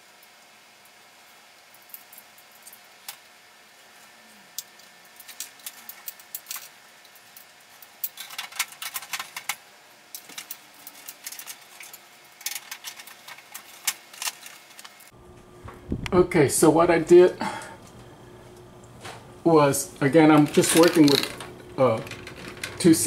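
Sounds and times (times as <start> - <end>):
wires rattling against sheet metal: 7.4 - 15.1, 20.0 - 23.0.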